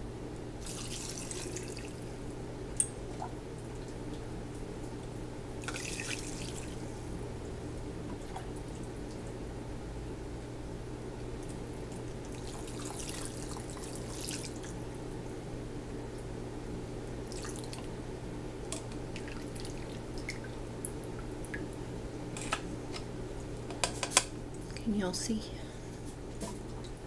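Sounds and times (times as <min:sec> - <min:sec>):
steady low hum: 0:00.0 - 0:27.0
liquid splashing and dripping: 0:00.6 - 0:02.1, 0:05.6 - 0:07.0, 0:17.2 - 0:17.9, 0:18.8 - 0:21.7.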